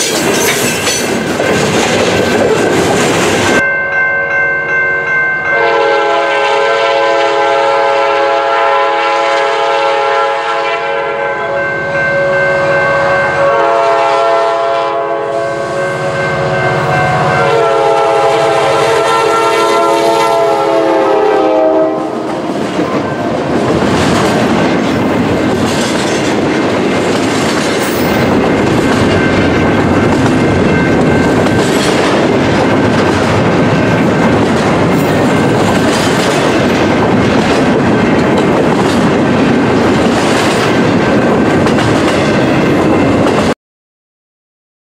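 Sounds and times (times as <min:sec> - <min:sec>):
train wheels clattering on rail: 0:00.0 - 0:03.6, 0:22.2 - 0:43.6
train air horn blasts: 0:05.5 - 0:23.3.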